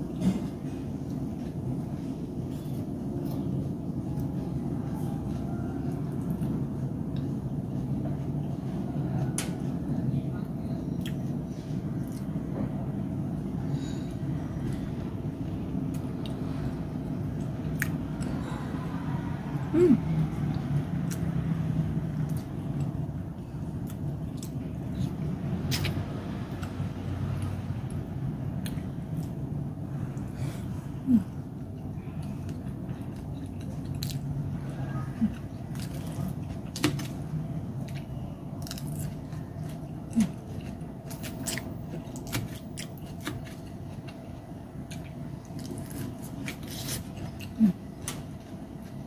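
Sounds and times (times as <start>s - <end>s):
low rumbling hum: 0.0s - 49.0s
person humming: 19.7s - 20.2s.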